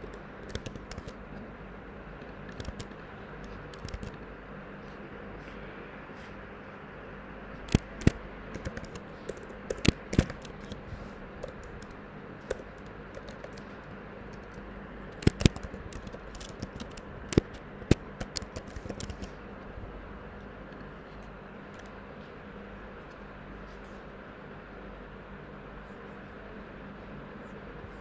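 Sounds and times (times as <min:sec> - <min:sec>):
computer keyboard typing: 0:00.0 - 0:01.4, 0:02.2 - 0:04.3, 0:07.6 - 0:19.4.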